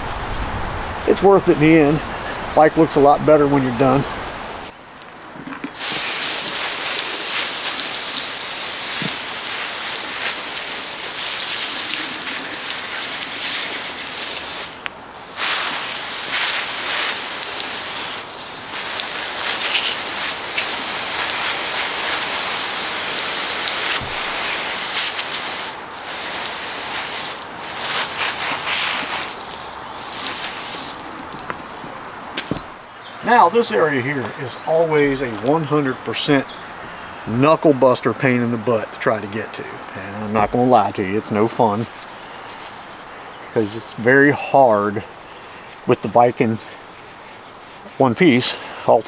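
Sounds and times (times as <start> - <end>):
steady hissing spray: 5.8 - 31.9, 40.0 - 49.0.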